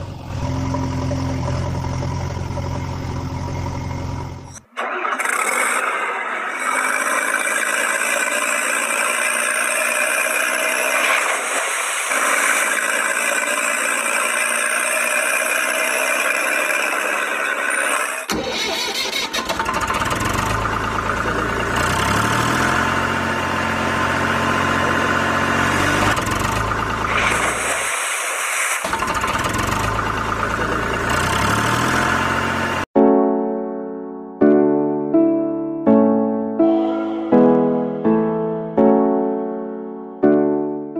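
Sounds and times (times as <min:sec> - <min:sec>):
deeper engine revving: 0:00.0 - 0:18.4, 0:19.5 - 0:32.9
engine running: 0:00.0 - 0:32.9.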